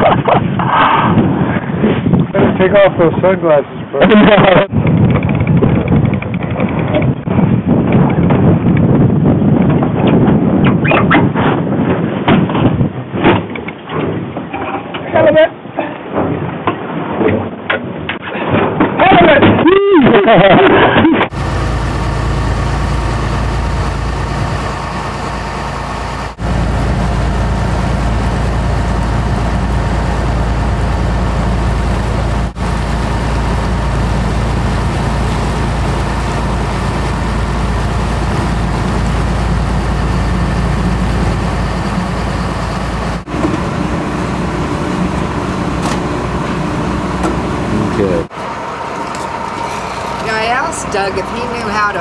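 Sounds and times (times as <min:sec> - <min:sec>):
boat engine droning: 0:21.3 - 0:52.0.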